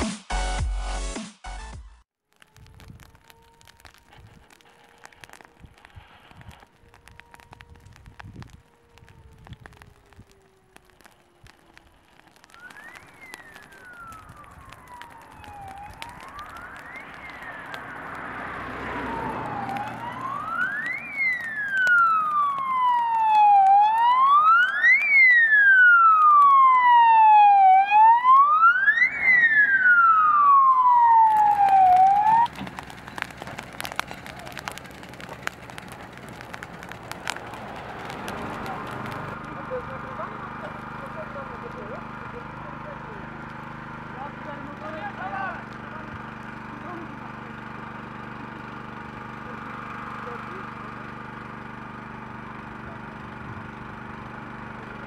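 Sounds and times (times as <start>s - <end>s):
siren wailing: 2.4s - 32.6s, 33.2s - 35.9s.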